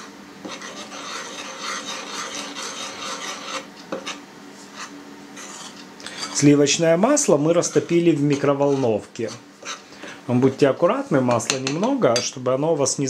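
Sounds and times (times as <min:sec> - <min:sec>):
fork scraping flour in bowl: 0:00.0 - 0:09.8.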